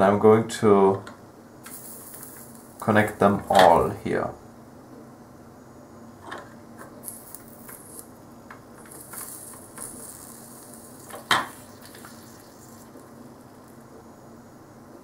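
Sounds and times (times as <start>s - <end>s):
flux sizzling under soldering iron: 1.5s - 4.0s, 6.7s - 14.9s.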